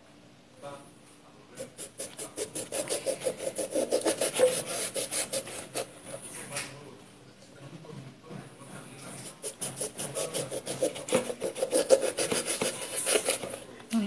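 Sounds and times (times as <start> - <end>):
knife sawing through lemon: 1.6 - 6.2, 9.2 - 13.6.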